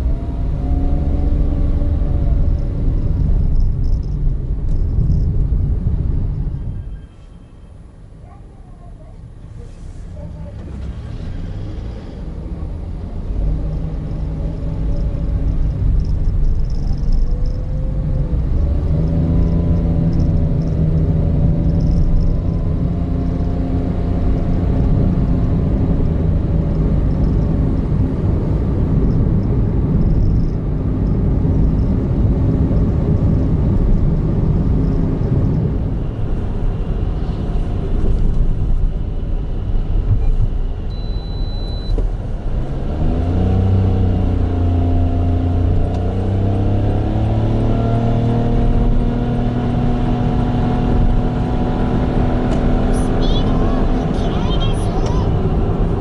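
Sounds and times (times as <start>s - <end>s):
car engine accelerating: 0.0s - 6.6s, 9.8s - 41.0s, 41.9s - 56.0s
tyre and road rumble: 0.0s - 7.2s, 8.2s - 40.9s, 41.9s - 56.0s
short high beep: 40.9s - 42.0s.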